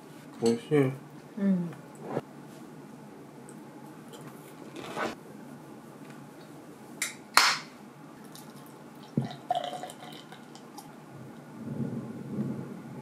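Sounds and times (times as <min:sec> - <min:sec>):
beer pouring into glass: 0:08.3 - 0:10.9.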